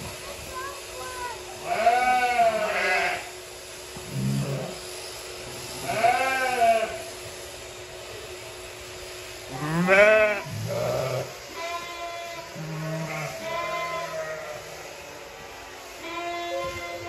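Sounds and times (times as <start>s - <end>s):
sheep bleating: 1.6s - 3.3s, 5.8s - 7.0s, 9.8s - 14.8s.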